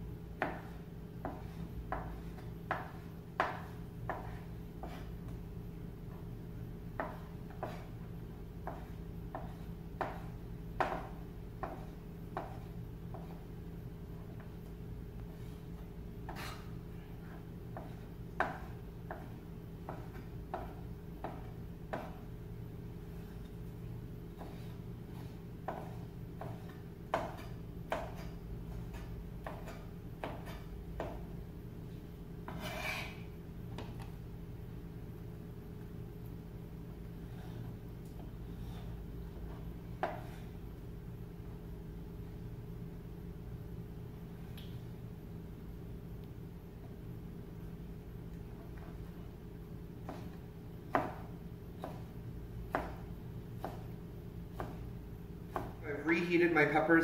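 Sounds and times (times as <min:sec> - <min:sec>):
steady low hum: 0:00.0 - 0:57.0
knife chopping on cutting board: 0:00.4 - 0:05.1, 0:07.0 - 0:07.9, 0:08.6 - 0:13.4, 0:17.7 - 0:22.3, 0:24.4 - 0:31.3, 0:32.4 - 0:33.2, 0:39.4 - 0:40.4, 0:50.0 - 0:54.9, 0:55.5 - 0:55.8.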